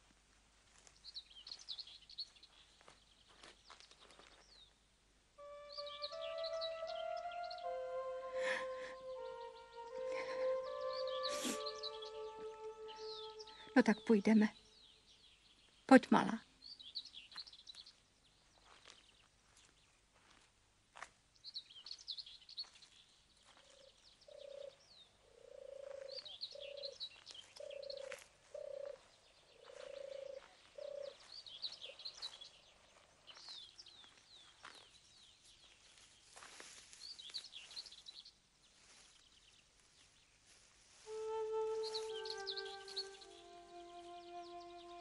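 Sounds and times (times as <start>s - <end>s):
small birds chirping: 0.7s - 20.4s, 21.3s - 45.0s
lower bird call: 5.4s - 14.0s, 41.0s - 45.0s.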